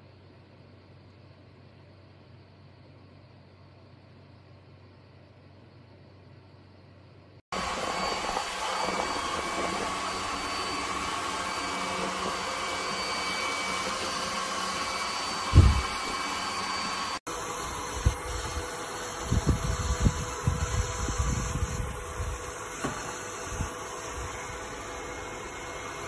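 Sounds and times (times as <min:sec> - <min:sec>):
robot vacuum whirring: 0:07.6 - 0:26.0
loud low thump: 0:15.5 - 0:15.9.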